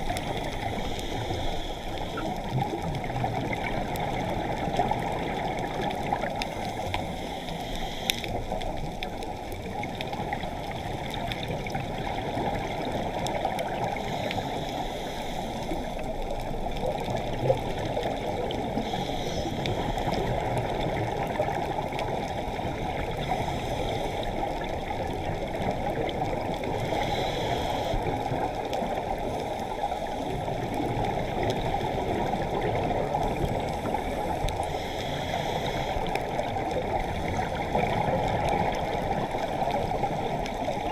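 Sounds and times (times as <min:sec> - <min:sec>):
faint hissing: 0:00.0 - 0:03.0, 0:06.3 - 0:08.9, 0:13.8 - 0:16.4, 0:18.6 - 0:20.9, 0:22.4 - 0:24.8, 0:26.7 - 0:32.2, 0:32.8 - 0:37.6
underwater water rushing: 0:00.0 - 0:40.9.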